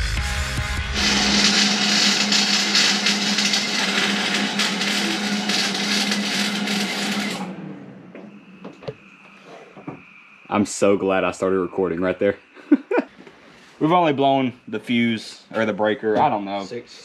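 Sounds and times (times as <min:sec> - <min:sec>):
low hum: 0:00.6 - 0:13.0
welder arc crackling: 0:00.9 - 0:07.5.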